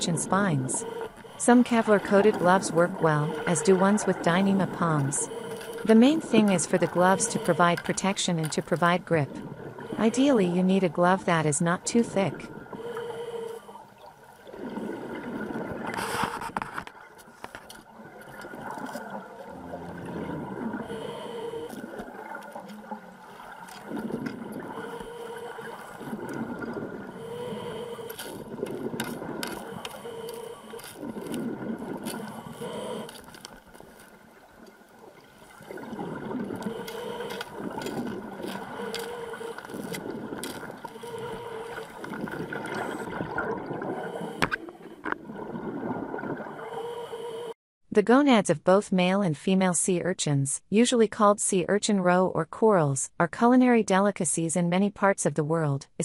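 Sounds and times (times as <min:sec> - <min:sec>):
diver breathing through regulator: 0:00.0 - 0:15.2, 0:19.7 - 0:22.7, 0:23.4 - 0:34.2, 0:35.5 - 0:45.2, 0:46.4 - 0:47.6
gurgling exhaled bubbles: 0:00.0 - 0:17.2, 0:17.8 - 0:46.9.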